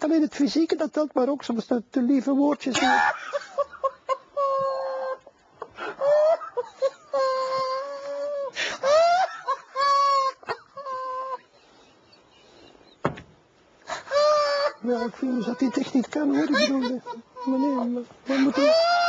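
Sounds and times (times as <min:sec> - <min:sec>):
man's stifled laughter: 0:02.8 - 0:11.9, 0:14.0 - 0:19.0.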